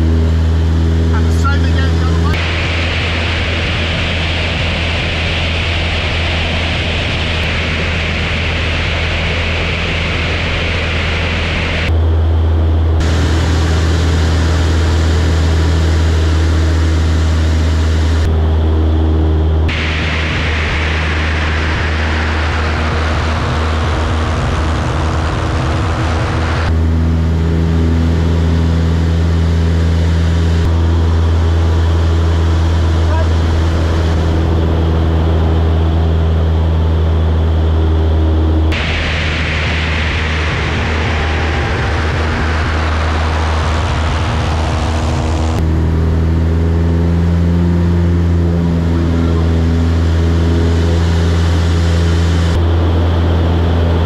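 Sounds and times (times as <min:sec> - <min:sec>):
propeller engine drone: 0:00.0 - 0:54.0
rushing airflow hiss: 0:02.4 - 0:11.9, 0:13.0 - 0:18.3, 0:19.7 - 0:26.7, 0:38.7 - 0:45.6
wind rushing over camera: 0:19.6 - 0:27.1, 0:30.1 - 0:46.0.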